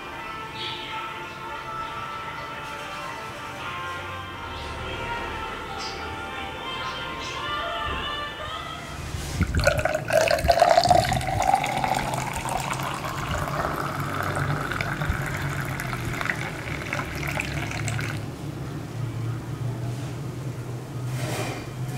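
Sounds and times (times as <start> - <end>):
liquid pouring into a ceramic cup: 9.4 - 18.2
liquid splash: 9.4 - 18.2.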